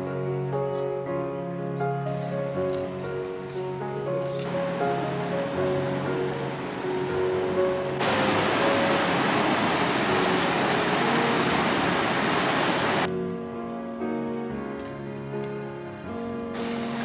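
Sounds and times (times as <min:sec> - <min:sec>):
background music: 0:00.0 - 0:17.0
stream rushing over rocks: 0:04.4 - 0:13.1.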